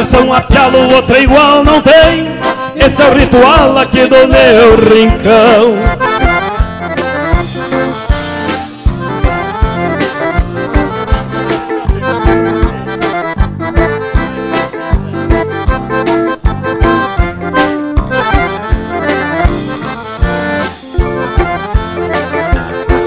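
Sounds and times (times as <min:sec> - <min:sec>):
accordion with bass and guitar: 0:00.0 - 0:23.0.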